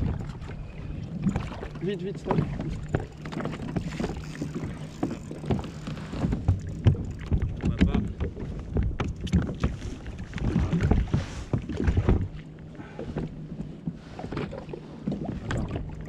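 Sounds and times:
knocks against kayak hull: 0:10.4 - 0:12.3.

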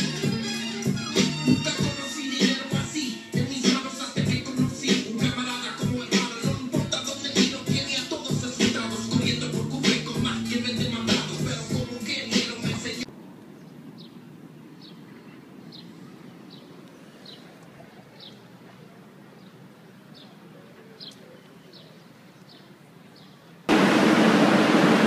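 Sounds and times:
loud steady rushing noise: 0:04.2 - 0:13.1, 0:23.7 - 0:25.0
bird chirping: 0:05.2 - 0:18.5.

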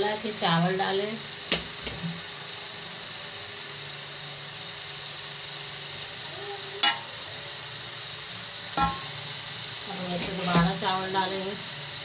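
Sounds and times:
steady hiss: 0:00.0 - 0:12.0
steel spoon clinking on pot: 0:06.8 - 0:07.1, 0:08.8 - 0:09.2.

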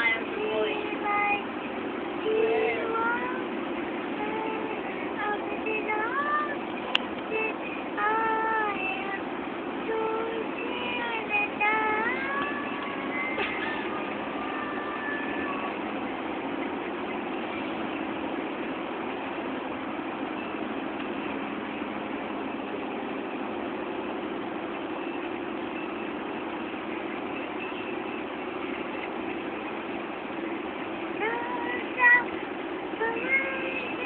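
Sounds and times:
low mechanical rumble with hiss: 0:00.0 - 0:34.0.

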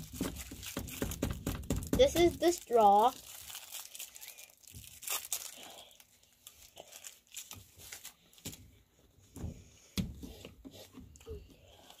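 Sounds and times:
plastic wrappers crinkling: 0:00.0 - 0:08.8.

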